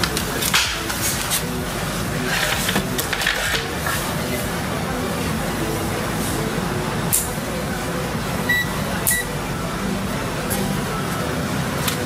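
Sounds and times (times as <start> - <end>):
short high electronic beeps: 8.5 - 9.3.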